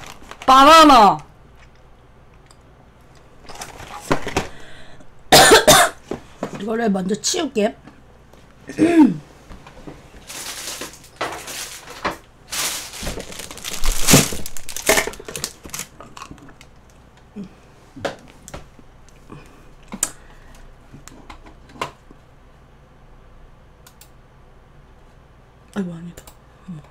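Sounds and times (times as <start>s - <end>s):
plastic bag rustling: 0.0s - 0.9s, 10.1s - 16.8s.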